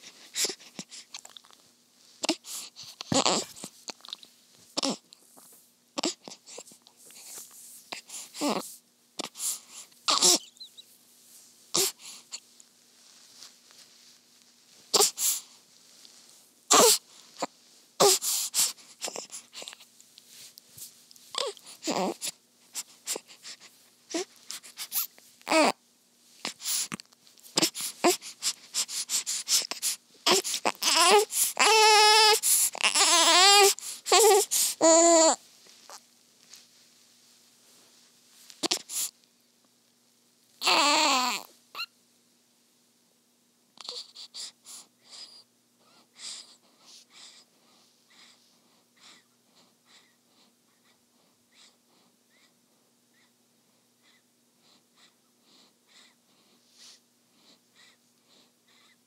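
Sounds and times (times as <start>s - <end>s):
newborn baby breathing: 0.0s - 1.2s, 2.2s - 3.8s, 6.0s - 10.7s, 11.7s - 12.5s, 14.9s - 20.6s, 21.3s - 25.1s, 26.4s - 36.0s, 38.5s - 39.2s, 43.8s - 53.3s, 54.0s - 59.0s
baby crying: 3.1s - 3.7s, 4.8s - 5.0s, 10.1s - 10.7s, 16.7s - 17.0s, 18.0s - 18.3s, 21.4s - 22.3s, 25.5s - 25.8s, 30.3s - 35.4s, 40.6s - 41.9s.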